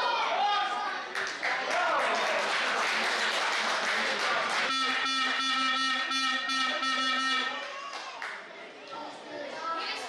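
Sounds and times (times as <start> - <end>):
crowd cheering and clapping: 1.1 - 5.6, 7.6 - 8.4
buzzy horn note: 4.7 - 7.6.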